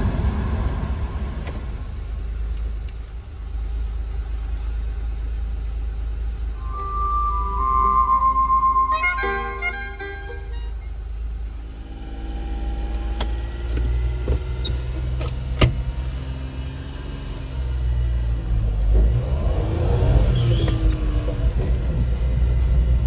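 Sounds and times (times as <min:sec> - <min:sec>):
small truck engine running: 0:00.0 - 0:16.5.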